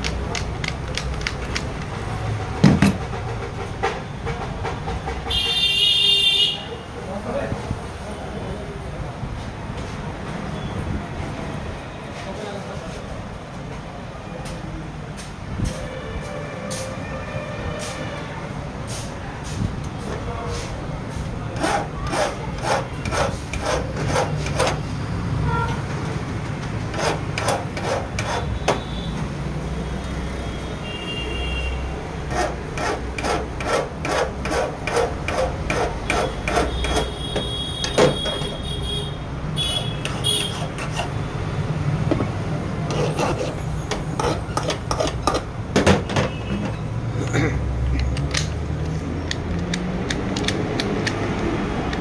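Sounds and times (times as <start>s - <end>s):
hand file rasping on metal key: 21.6s - 24.8s, 26.9s - 28.6s, 32.3s - 37.1s, 40.0s - 41.2s, 42.9s - 45.4s.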